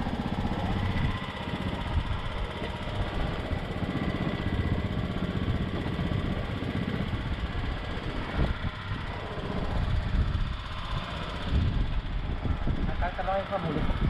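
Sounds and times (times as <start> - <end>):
small engine running: 0.0 - 14.0.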